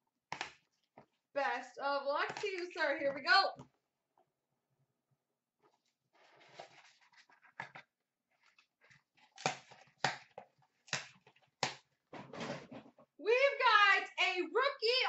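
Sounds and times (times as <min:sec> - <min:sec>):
cardboard box rustling and sliding: 0:06.2 - 0:07.4.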